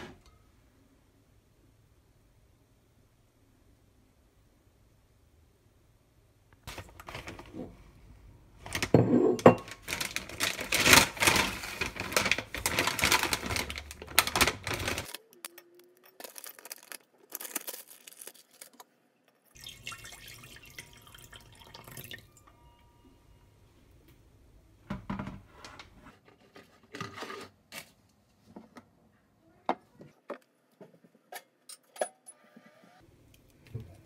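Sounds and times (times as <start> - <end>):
plastic bag crinkling: 6.6 - 7.6, 9.6 - 18.8.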